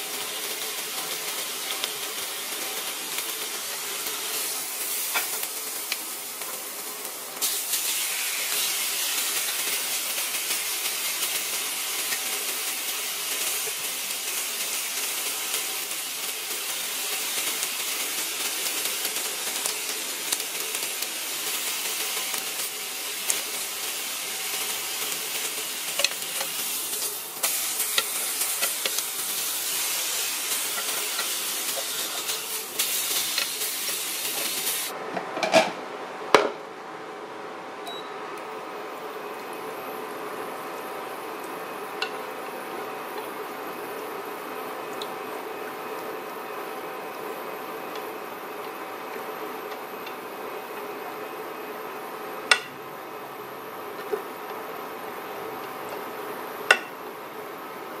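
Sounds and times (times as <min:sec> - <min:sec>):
steak sizzling in a grill pan: 0:00.0 - 0:34.9
metal tongs clicking against pan: 0:26.0 - 0:26.5.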